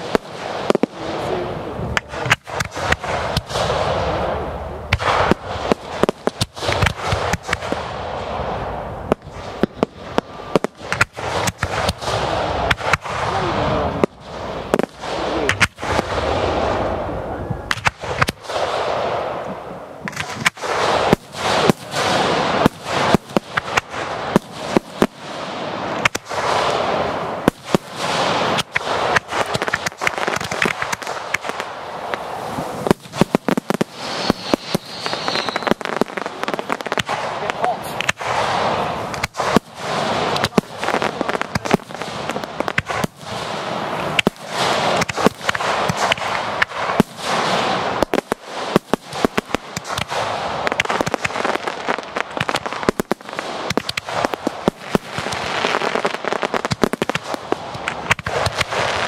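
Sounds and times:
crackling hiss: 0.0 - 59.0
fireworks bangs: 0.0 - 59.0.

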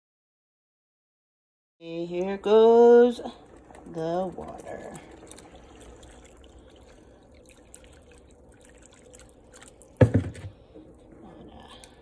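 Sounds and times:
dripping and splashing liquid: 2.1 - 12.0
water pouring into soup: 2.1 - 12.0
loud thump: 10.0 - 10.6.

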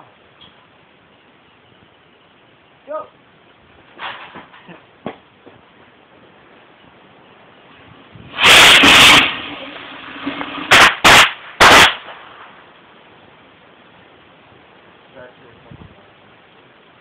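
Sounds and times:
firework blast: 7.8 - 13.0
firework fizzing hiss: 7.8 - 13.0
sharp firework bangs: 8.2 - 12.7.

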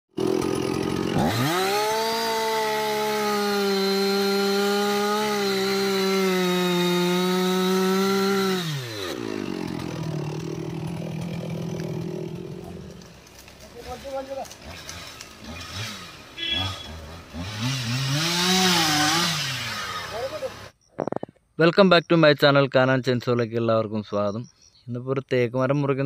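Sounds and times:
chainsaw cutting wood: 0.1 - 20.8.

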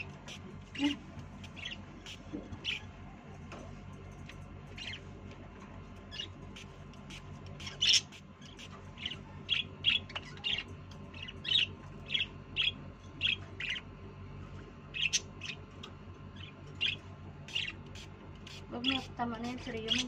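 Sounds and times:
budgerigars chirping: 0.0 - 2.9, 6.1 - 6.3, 7.1 - 13.8, 14.9 - 20.0
faint low hum: 0.0 - 20.0.

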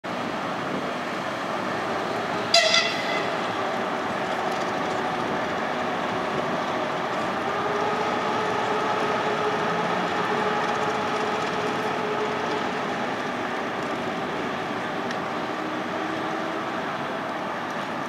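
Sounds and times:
locomotive engine drone: 0.1 - 18.0
high horn toot: 2.5 - 3.5.

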